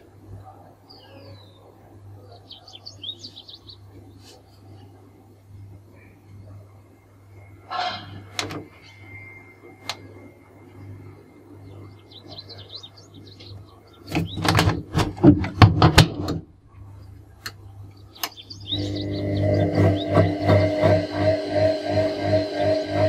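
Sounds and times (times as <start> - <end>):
steady low hum: 0.0 - 23.0
faint bird chirps: 5.9 - 14.5, 17.9 - 20.5.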